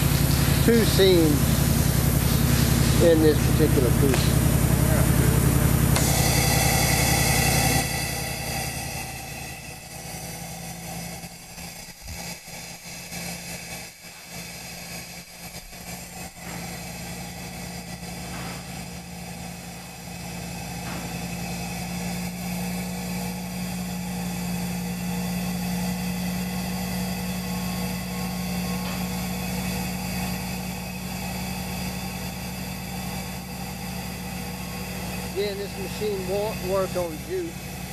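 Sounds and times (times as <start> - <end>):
machine hum with high whine: 0.0 - 37.9.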